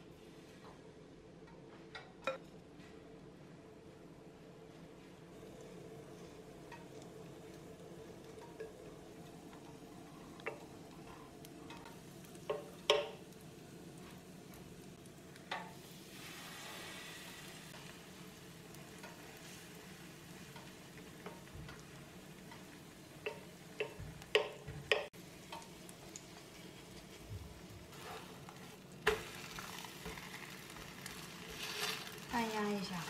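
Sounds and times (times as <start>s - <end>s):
batter sizzling in oil: 5.2s - 33.0s
wooden spatula scraping and knocking: 26.9s - 32.3s.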